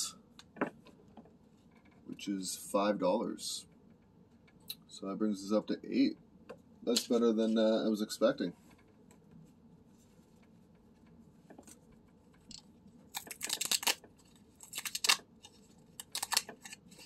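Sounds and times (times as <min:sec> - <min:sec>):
paper tabs ripping: 0:13.1 - 0:17.0.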